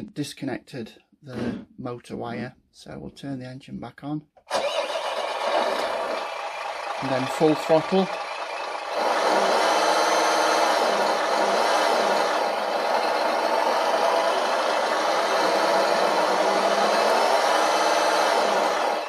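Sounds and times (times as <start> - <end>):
simulated truck engine drone: 4.5 - 19.0.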